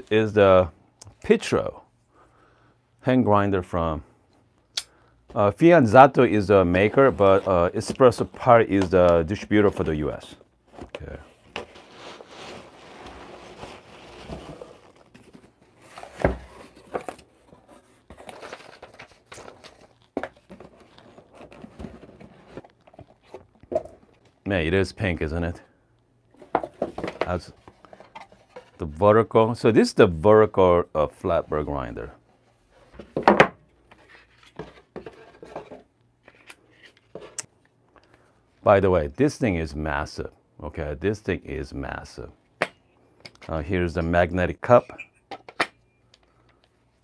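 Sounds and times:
cardboard packaging handled: 0:06.8 - 0:23.9
packing peanuts and cardboard rustling: 0:10.9 - 0:17.4.

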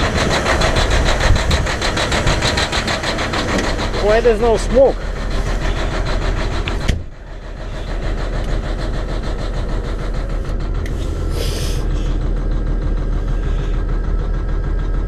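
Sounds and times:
diesel truck engine idling: 0:00.0 - 0:15.0
short hiss: 0:11.3 - 0:11.9.

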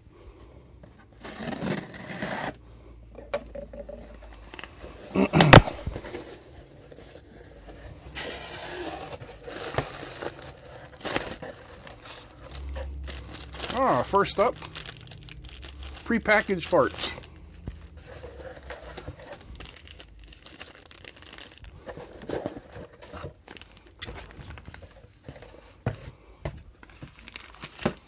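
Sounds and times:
box cutter slitting packing tape: 0:01.2 - 0:02.6, 0:08.2 - 0:12.2
plastic packing crinkling: 0:08.2 - 0:25.5, 0:26.8 - 0:28.0.

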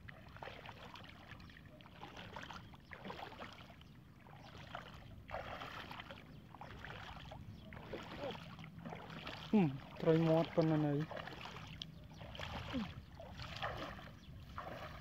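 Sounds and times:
bare feet splashing through water: 0:00.0 - 0:15.0.

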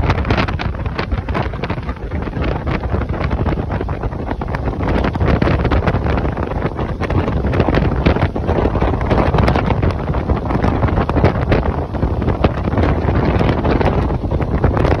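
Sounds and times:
motorboat running: 0:00.0 - 0:15.0
wind buffeting microphone: 0:00.0 - 0:15.0.

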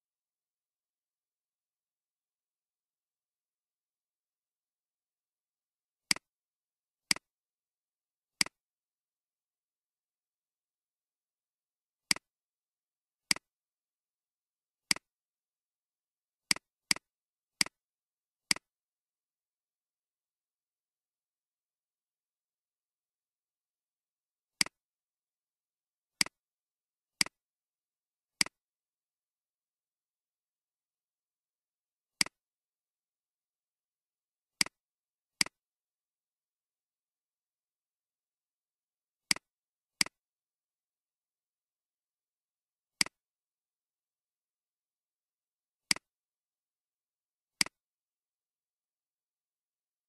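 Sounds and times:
computer mouse clicks: 0:13.3 - 0:13.5, 0:18.5 - 0:18.7, 0:28.4 - 0:28.6, 0:45.9 - 0:46.1.

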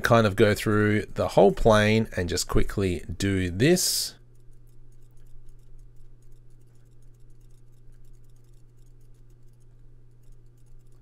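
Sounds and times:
low hum: 0:00.0 - 0:11.0
computer mouse clicks: 0:04.3 - 0:11.0.

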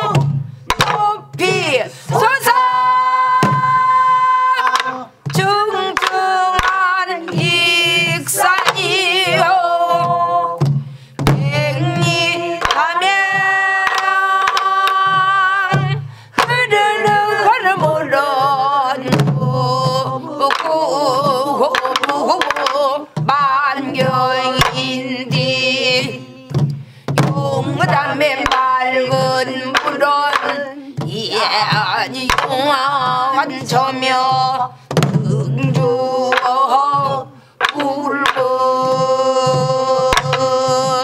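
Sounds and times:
barrel drum stick strikes: 0:00.0 - 0:01.5, 0:04.6 - 0:09.5, 0:10.6 - 0:15.2, 0:37.6 - 0:38.6
woman singing with wide vibrato: 0:00.0 - 0:10.6, 0:11.2 - 0:41.0.

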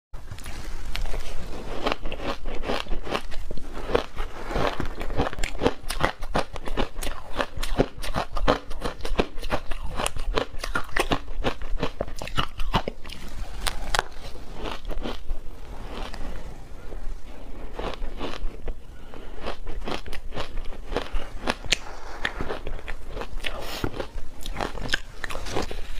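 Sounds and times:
crunching shaved ice: 0:00.4 - 0:25.9.

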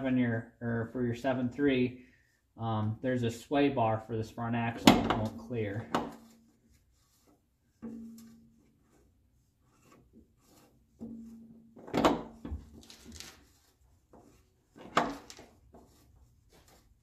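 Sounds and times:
metal filter scraping and rubbing: 0:05.4 - 0:11.7.

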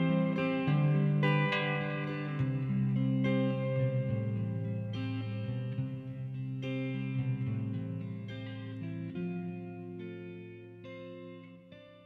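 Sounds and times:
guitar chords ringing: 0:00.0 - 0:12.0.

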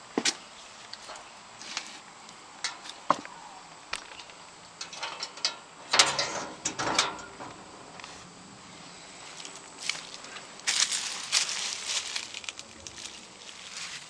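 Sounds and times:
sharp clicks and knocks: 0:03.9 - 0:08.1
rustling: 0:06.1 - 0:14.0.

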